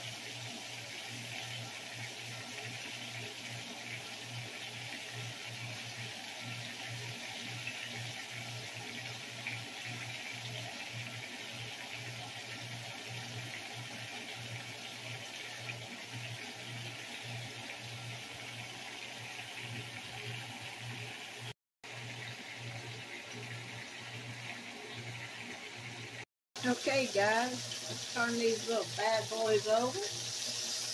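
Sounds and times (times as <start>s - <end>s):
meat sizzling in a frying pan: 0.0s - 18.7s, 26.6s - 30.9s.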